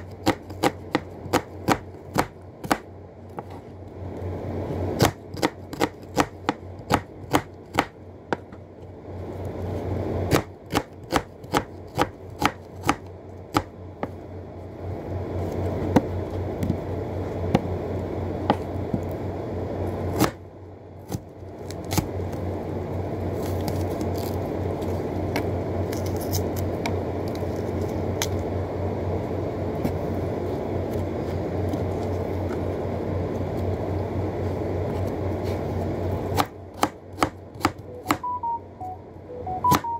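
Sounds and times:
low hum: 37.8s - 39.9s.

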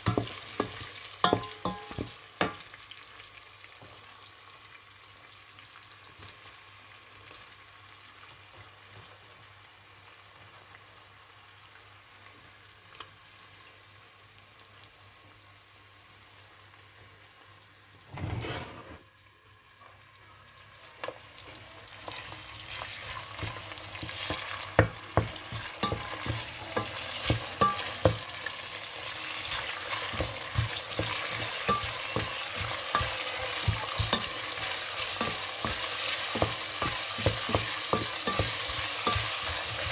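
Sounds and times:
wooden spoon knocking a pot: 0.0s - 2.6s, 23.4s - 28.3s, 30.1s - 39.9s
food frying in a pot: 0.0s - 18.3s, 19.0s - 39.9s.

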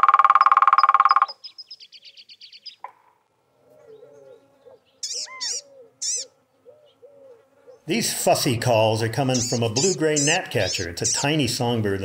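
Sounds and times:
woodpecker drumming: 0.0s - 1.9s, 5.0s - 6.3s, 8.6s - 11.8s
bird high fussy calls: 0.0s - 2.9s, 3.8s - 7.8s, 9.2s - 11.4s.

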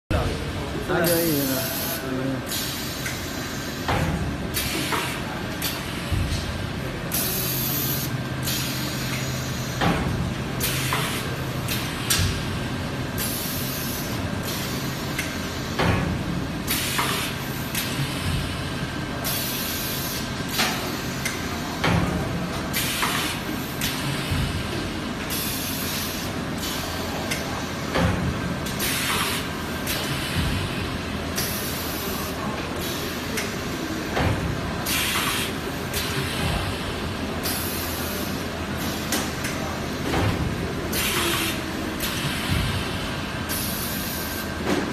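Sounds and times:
pneumatic cylinders hissing air: 1.5s - 3.9s, 7.1s - 10.0s, 13.2s - 16.0s, 16.7s - 18.6s, 19.2s - 21.8s, 22.7s - 27.9s, 37.4s - 39.3s, 40.9s - 44.7s.

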